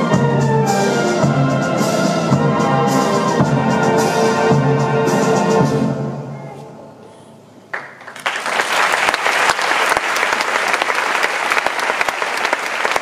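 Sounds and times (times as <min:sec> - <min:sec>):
audience applause: 0:07.7 - 0:13.0.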